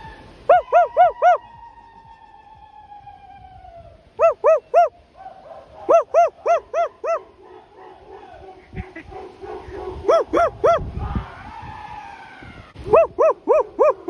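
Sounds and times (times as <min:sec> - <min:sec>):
dog barking in yelps: 0:00.5 - 0:01.4, 0:04.2 - 0:11.2, 0:12.8 - 0:14.0.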